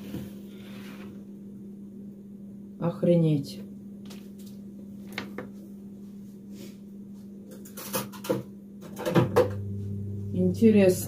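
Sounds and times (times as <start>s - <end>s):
steady low hum: 8.6s - 11.0s.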